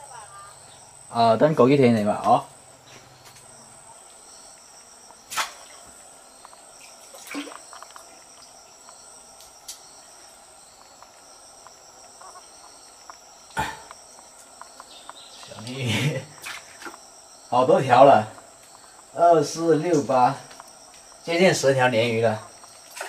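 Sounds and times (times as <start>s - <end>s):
insects chirping: 0.0s - 23.0s.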